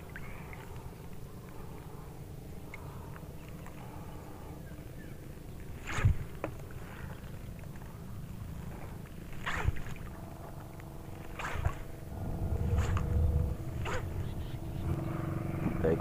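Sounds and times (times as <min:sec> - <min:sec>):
wind rumbling on microphone: 0:05.8 - 0:06.4, 0:08.0 - 0:16.0
steady motor hum: 0:07.5 - 0:16.0
short rushing splashes: 0:11.4 - 0:15.2.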